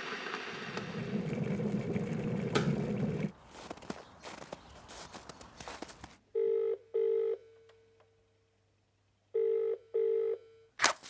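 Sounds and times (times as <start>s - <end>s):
boots crunching through snow: 3.4s - 6.2s
telephone ringing tone: 6.4s - 7.6s, 9.4s - 10.7s.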